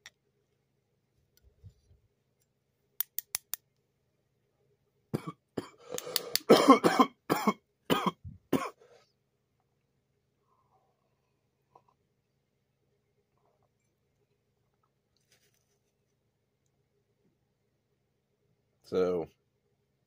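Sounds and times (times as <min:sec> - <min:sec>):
sharp clicks: 0:03.0 - 0:03.6
man coughing harshly: 0:06.4 - 0:08.8.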